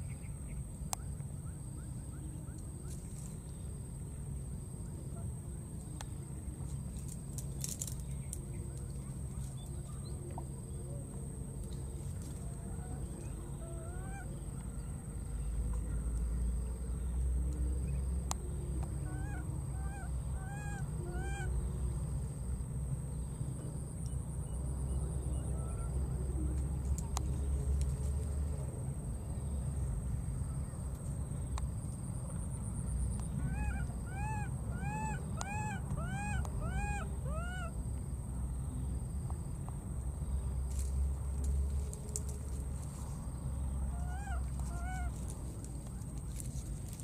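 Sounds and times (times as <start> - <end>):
baby monkey high calls: 13.6 - 14.4, 19.0 - 21.6, 33.3 - 37.8, 43.9 - 45.3.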